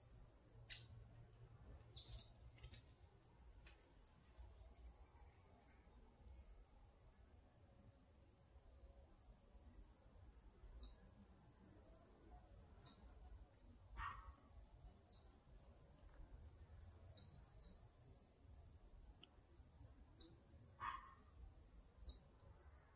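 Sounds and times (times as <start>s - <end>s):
high-pitched insect chorus: 0.6s - 22.7s.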